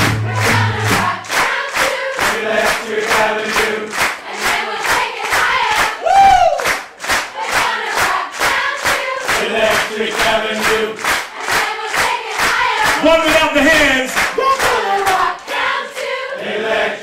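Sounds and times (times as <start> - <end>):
crowd singing and shouting: 0.0 - 6.0, 7.3 - 17.0
rhythmic hand clapping: 0.0 - 16.9
whooping shout: 6.0 - 6.7, 14.4 - 15.2.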